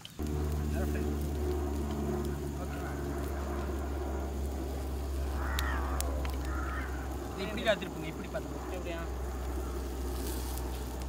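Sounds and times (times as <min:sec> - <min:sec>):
low motor hum: 0:00.0 - 0:11.0.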